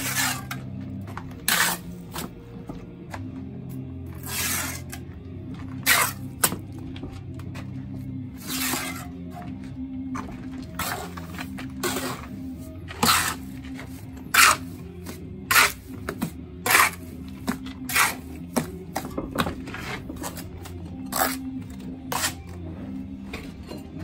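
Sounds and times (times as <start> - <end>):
trowel scraping wet mortar: 0.0 - 0.7, 1.4 - 2.3, 4.2 - 5.1, 5.8 - 6.6, 8.3 - 9.3, 10.2 - 18.7, 19.6 - 22.6.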